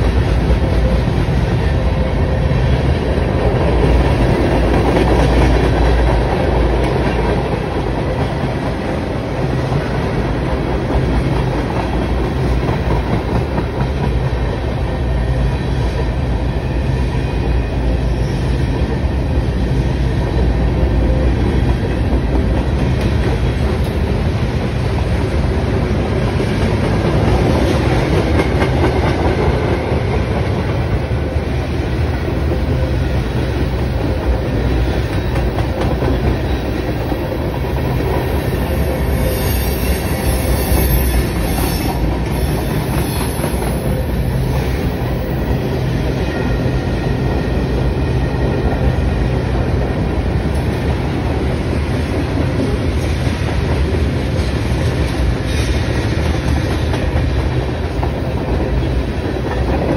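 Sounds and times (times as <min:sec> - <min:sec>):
freight train wheels rumbling: 0:00.0 - 0:59.9.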